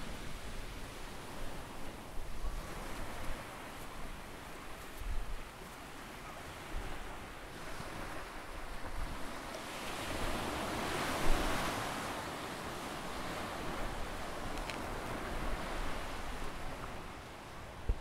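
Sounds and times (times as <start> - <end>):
ocean surf breaking: 5.6 - 18.0
wind buffeting microphone: 12.7 - 18.0.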